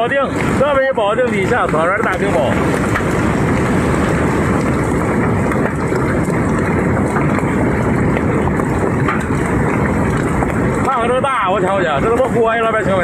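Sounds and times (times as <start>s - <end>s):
hail pelting leaves and ground: 0.0s - 13.0s.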